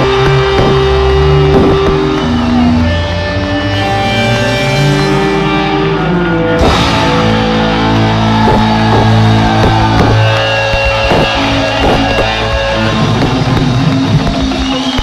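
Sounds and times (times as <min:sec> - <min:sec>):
drum beat: 0:00.0 - 0:02.2, 0:08.4 - 0:15.0
distorted electric guitar: 0:00.0 - 0:15.0.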